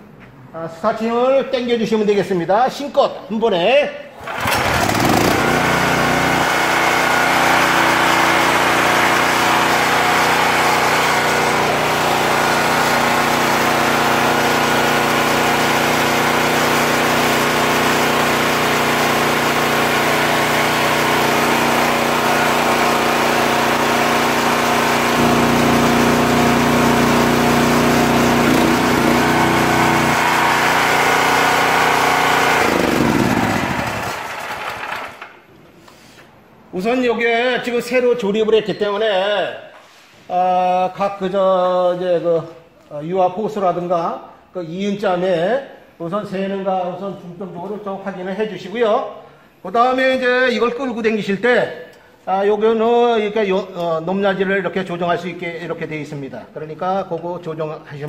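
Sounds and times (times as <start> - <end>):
small petrol engine running: 4.2 - 35.3.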